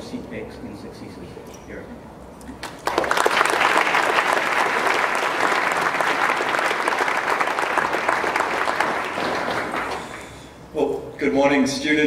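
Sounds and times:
audience applauding: 2.6s - 10.5s.

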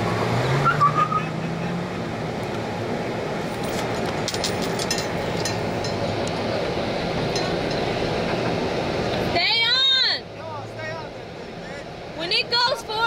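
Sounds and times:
outdoor background noise: 0.0s - 13.0s
faint clicks and clinks: 3.6s - 6.4s.

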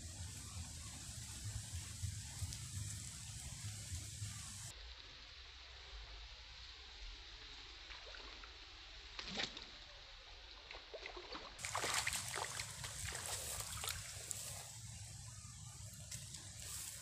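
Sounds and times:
water splashing in a ditch: 7.8s - 15.3s.

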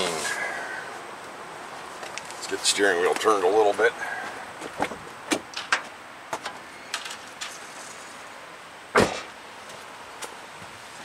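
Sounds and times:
loud thump: 8.9s - 9.4s.

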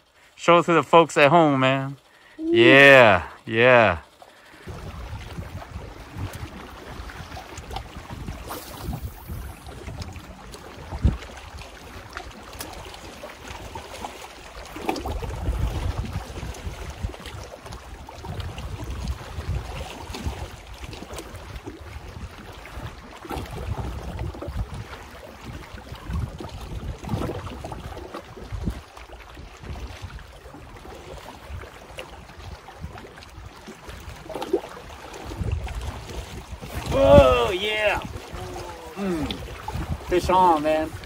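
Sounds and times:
waves lapping on rocky shore: 0.0s - 41.0s
wind gusting on microphone: 4.6s - 11.6s, 15.0s - 17.5s, 35.2s - 41.0s.

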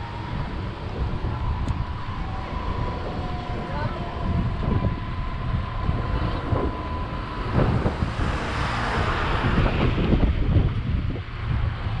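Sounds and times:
wind rumbling on microphone: 0.0s - 12.0s
car passing with tyre hiss: 5.5s - 12.0s.

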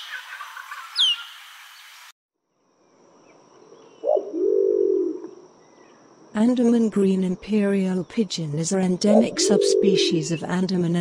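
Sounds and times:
pigeon low coo: 4.0s - 5.4s, 9.2s - 10.2s.

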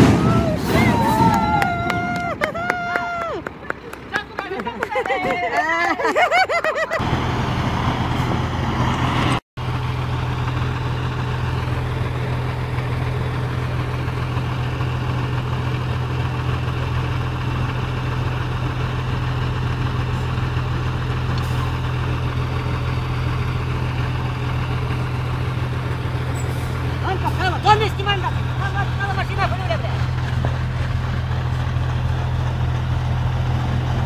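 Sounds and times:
diesel truck engine idling: 7.0s - 34.0s.

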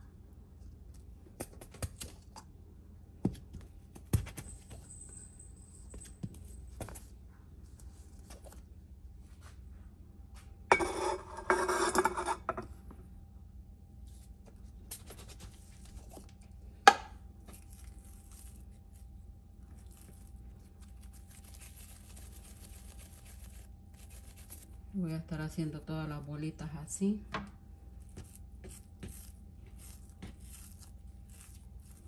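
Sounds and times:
clattering scrape: 10.7s - 12.6s
hands rustling dough: 14.0s - 25.6s, 26.8s - 32.0s.

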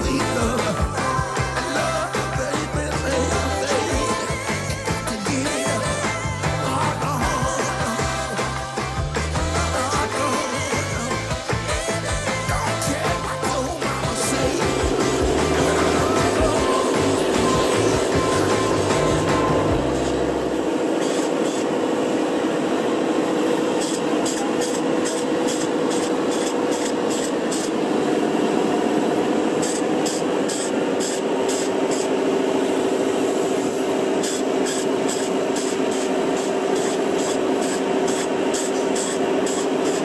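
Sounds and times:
machine humming: 0.0s - 40.0s
spray foam gun hissing: 0.0s - 40.0s.

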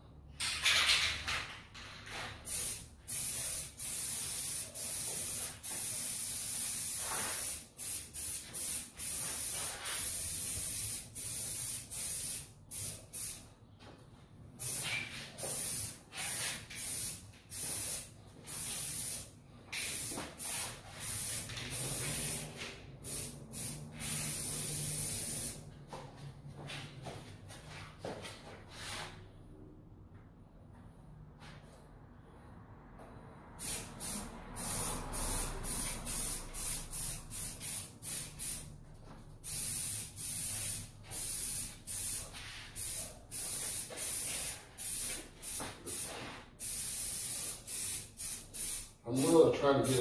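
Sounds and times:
aerosol spray can hissing: 14.7s - 25.6s, 33.6s - 38.7s, 39.4s - 48.9s.

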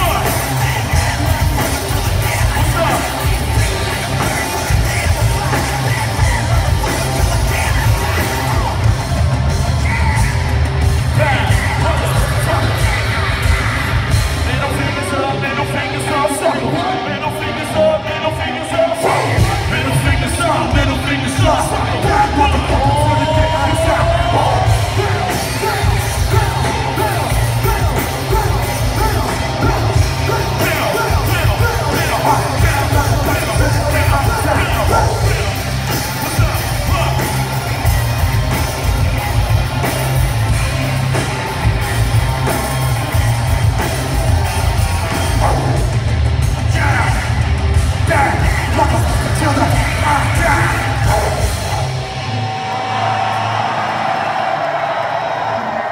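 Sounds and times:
person yelling lead vocal: 0.0s - 41.8s, 44.3s - 51.8s
drums: 0.0s - 55.9s
heavy bass: 0.0s - 55.9s
live rock band playing: 0.0s - 55.9s.

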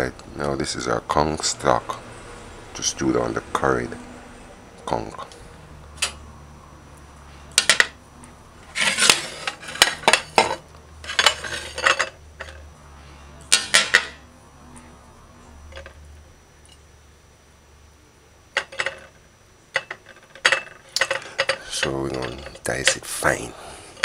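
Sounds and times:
dishes and utensils clinking: 8.7s - 12.7s, 13.5s - 14.2s, 18.6s - 23.1s.

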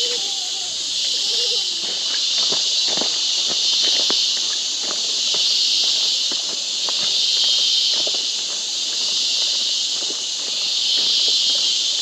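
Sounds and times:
footsteps on path: 0.0s - 12.0s
insects chorus: 0.0s - 12.0s.

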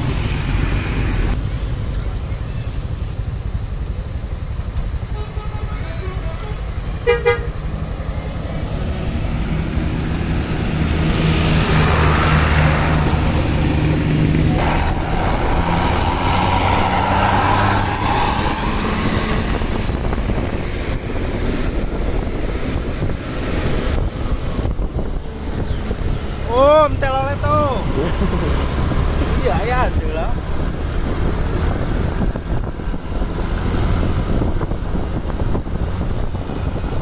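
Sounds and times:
bus engine passing by: 0.0s - 37.0s
bus horn melody: 5.1s - 7.6s.

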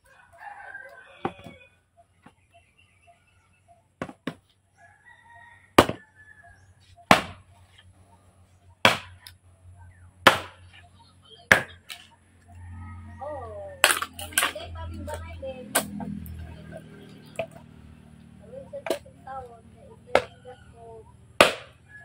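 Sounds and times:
distant rooster crowing: 0.0s - 2.1s, 4.7s - 7.1s, 11.7s - 15.1s, 19.8s - 22.0s
machete chopping wood: 4.0s - 4.4s, 5.8s - 6.0s, 7.0s - 7.5s, 8.8s - 9.4s, 10.2s - 10.7s, 11.5s - 12.0s, 13.8s - 14.5s, 15.7s - 16.1s, 20.1s - 20.3s, 21.4s - 21.8s.

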